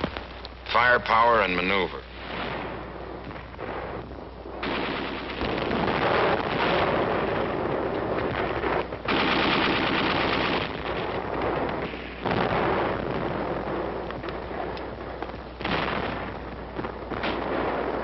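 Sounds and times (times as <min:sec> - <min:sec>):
rapid machine-gun fire: 0:04.6 - 0:15.0, 0:15.6 - 0:18.0.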